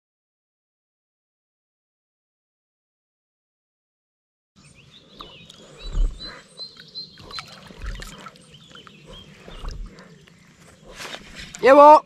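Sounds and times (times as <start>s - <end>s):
small birds chirping: 4.6s - 12.0s
low thumps: 5.2s - 6.4s, 9.0s - 10.1s.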